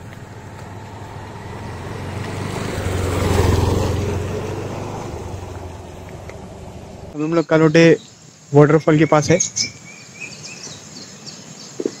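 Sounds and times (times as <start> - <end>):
vehicle passing by: 0.0 - 7.2.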